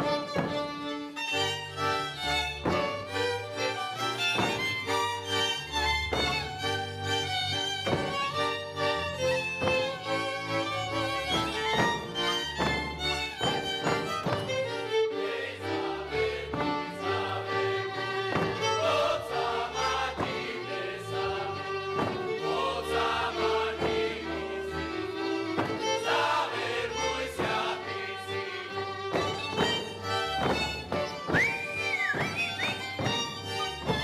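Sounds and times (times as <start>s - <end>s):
fiddle folk band playing: 0.0s - 34.0s
group singing: 14.8s - 29.9s.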